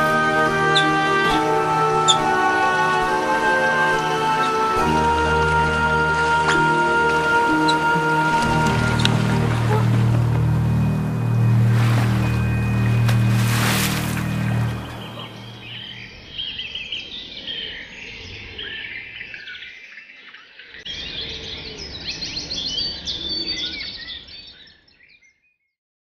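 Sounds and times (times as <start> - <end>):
music: 0.0 - 15.9
songbirds chirping and trilling: 0.0 - 25.6.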